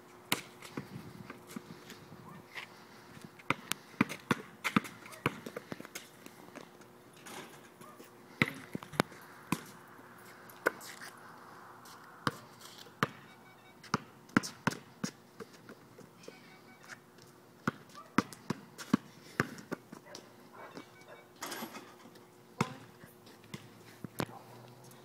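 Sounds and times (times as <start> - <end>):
basketball bouncing on pavement: 0.3 - 2.0, 3.4 - 6.1, 7.8 - 9.8, 12.2 - 16.2, 17.2 - 21.0, 22.6 - 24.4.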